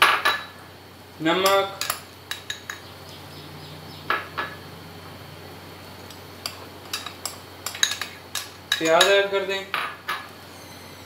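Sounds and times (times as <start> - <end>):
low steady hum: 0.0 - 11.0
kitchenware clinking on glass bowl: 1.4 - 2.9, 6.4 - 10.3.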